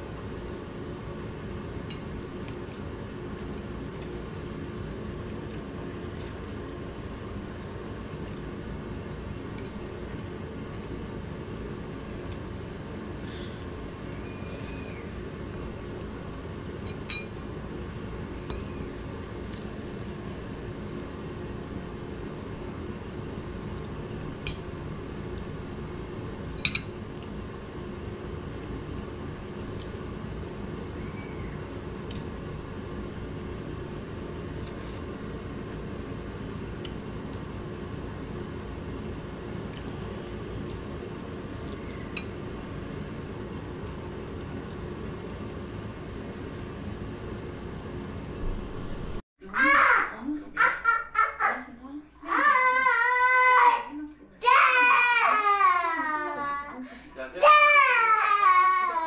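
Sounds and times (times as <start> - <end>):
steady low hum: 0.0 - 59.0
kitchenware clinking: 16.9 - 17.5, 26.6 - 27.0.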